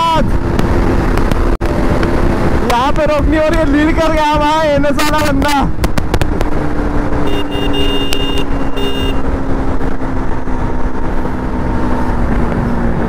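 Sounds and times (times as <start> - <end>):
heavy wind noise: 0.0 - 13.0
motorcycle engine at speed: 0.2 - 13.0
high steady tone: 7.2 - 9.2.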